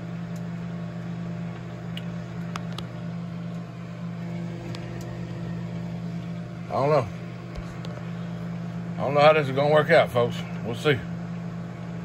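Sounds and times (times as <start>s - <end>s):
food crackling in microwave: 0.0s - 9.0s
microwave oven humming: 0.0s - 12.0s.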